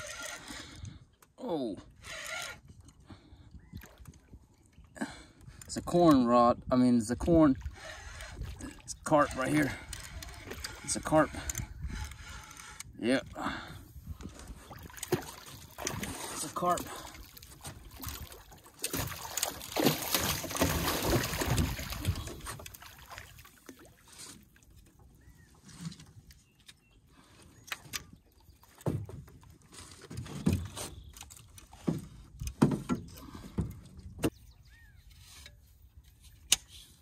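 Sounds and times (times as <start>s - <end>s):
fish thrashing and splashing: 14.4s - 24.1s.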